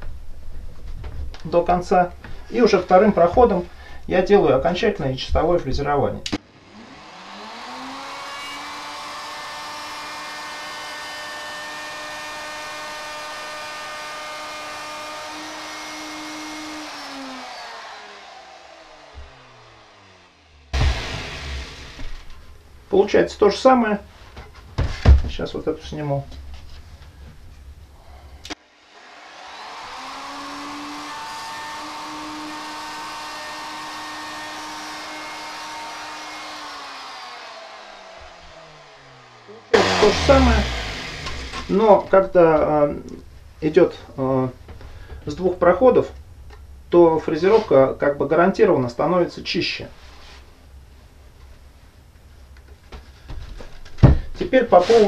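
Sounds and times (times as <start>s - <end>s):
router motor winding down: 6.4s - 22.4s, 28.5s - 42.0s
electric router whining: 6.4s - 22.5s, 28.5s - 42.2s.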